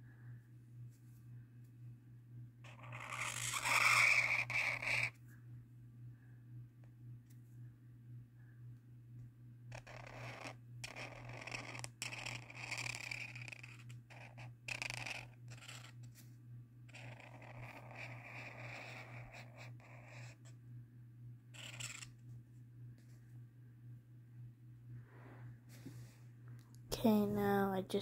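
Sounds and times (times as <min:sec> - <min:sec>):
steady low hum: 0:00.0 - 0:28.0
marker rubbing on paper: 0:02.7 - 0:05.2, 0:09.7 - 0:15.9, 0:16.9 - 0:20.5, 0:21.6 - 0:22.1.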